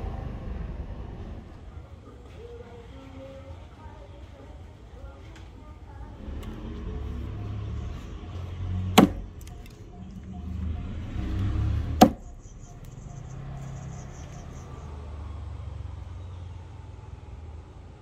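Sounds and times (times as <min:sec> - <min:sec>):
axe chopping into wood: 0:08.9 - 0:09.3, 0:12.0 - 0:12.2.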